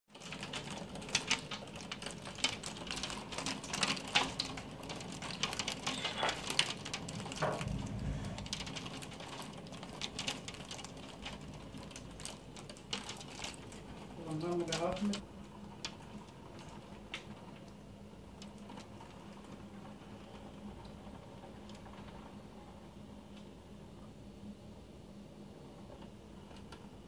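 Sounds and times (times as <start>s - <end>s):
hail clattering on window: 0.1s - 22.5s
heavy rain hiss: 7.4s - 9.2s.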